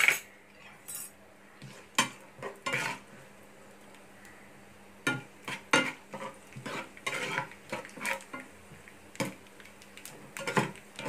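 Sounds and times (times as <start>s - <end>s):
metal spoon scraping frying pan: 0.9s - 3.1s, 5.1s - 8.4s.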